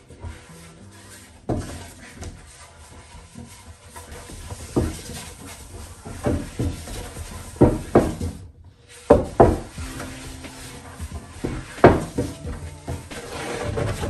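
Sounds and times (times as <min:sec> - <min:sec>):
dull wooden knocks: 0:06.0 - 0:08.4, 0:09.1 - 0:14.0.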